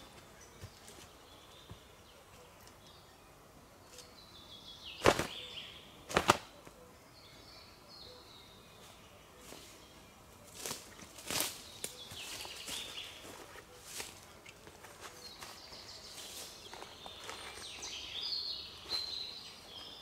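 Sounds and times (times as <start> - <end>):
faint high bird calls: 3.8 - 20.0
sharp cracks: 5.0 - 5.4, 6.1 - 6.5.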